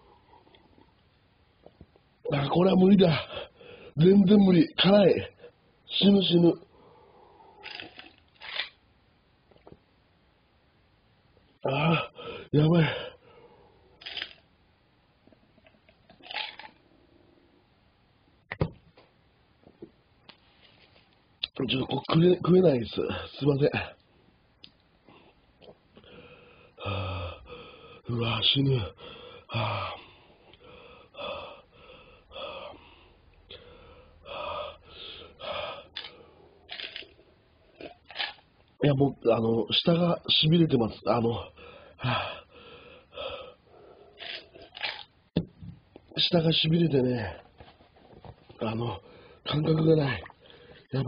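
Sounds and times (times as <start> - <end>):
man breathing sharply: 3.3 - 4.0, 26.0 - 28.1, 29.0 - 36.5, 41.5 - 44.2, 49.0 - 49.4.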